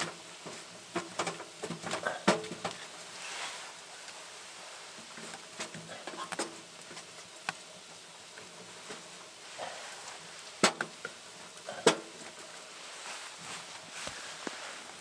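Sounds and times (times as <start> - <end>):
wood knocking against stove firebox: 0.0 - 2.8, 10.6 - 12.2.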